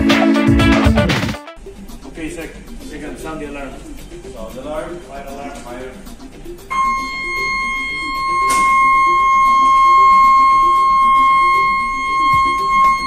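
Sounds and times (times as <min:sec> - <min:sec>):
background music: 0:00.0 - 0:13.0
high electronic alarm tone: 0:06.7 - 0:13.0.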